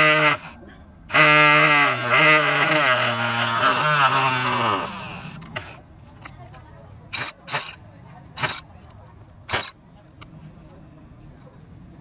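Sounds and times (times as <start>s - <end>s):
table saw motor whining: 1.1s - 5.4s.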